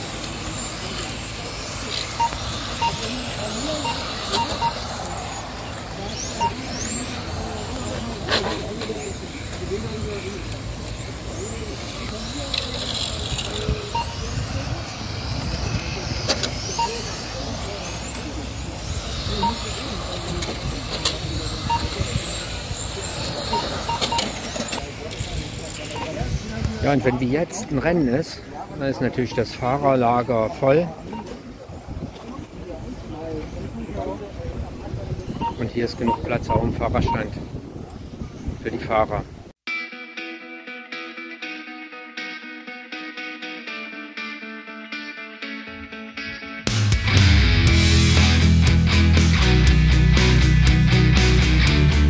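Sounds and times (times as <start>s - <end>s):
electric motors whining: 0.0s - 27.8s
steady background noise: 0.0s - 39.6s
short beeps: 1.9s - 5.0s, 6.2s - 7.6s, 13.9s - 14.3s, 16.4s - 18.4s, 19.1s - 22.5s, 23.3s - 24.8s, 25.9s - 26.3s, 29.2s - 30.4s, 31.1s - 31.4s, 35.3s - 37.3s.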